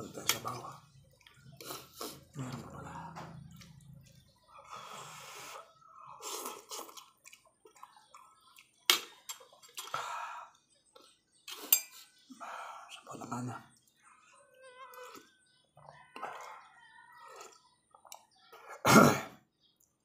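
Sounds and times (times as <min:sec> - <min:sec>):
slurping noodles: 0:00.2 - 0:08.5, 0:14.8 - 0:15.5, 0:16.1 - 0:18.8.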